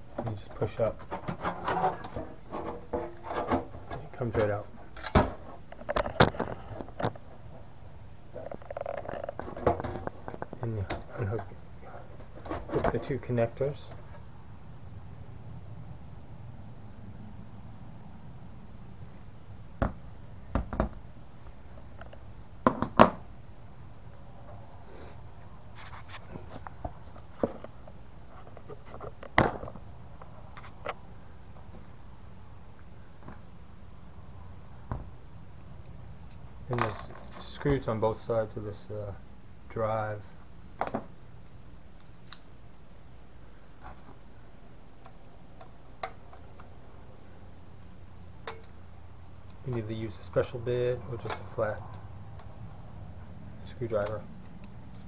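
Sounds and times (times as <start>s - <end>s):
metal cage clicks and taps: 48.5s - 48.8s.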